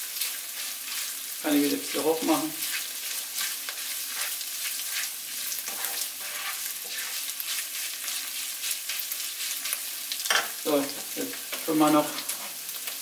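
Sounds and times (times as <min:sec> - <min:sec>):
meat sizzling in a frying pan: 0:00.0 - 0:13.0
spoon stirring and scraping: 0:00.1 - 0:13.0.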